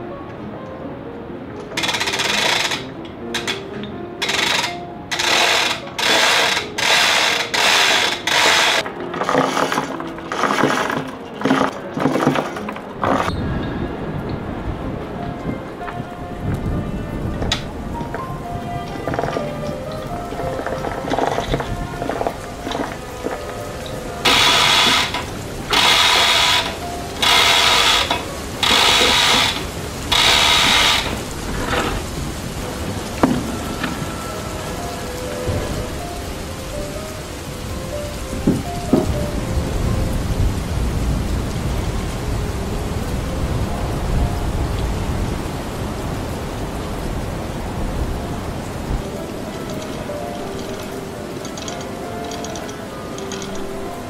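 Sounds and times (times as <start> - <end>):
hoist chain rattling: 1.8 - 3.6, 4.2 - 13.3, 24.2 - 32.0, 49.6 - 53.6.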